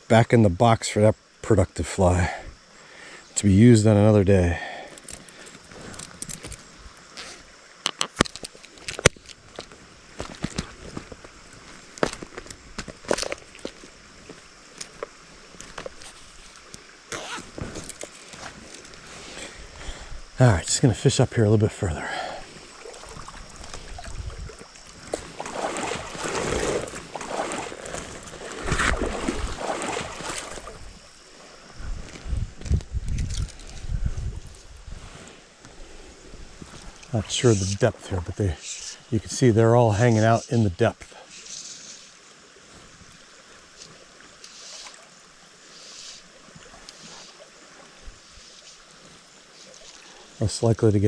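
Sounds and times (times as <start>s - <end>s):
legs wading through stream: 4.6s - 32.2s, 34.4s - 51.0s
flowing water rushing: 8.6s - 31.8s, 40.8s - 51.0s
water sloshing around legs: 22.3s - 32.2s.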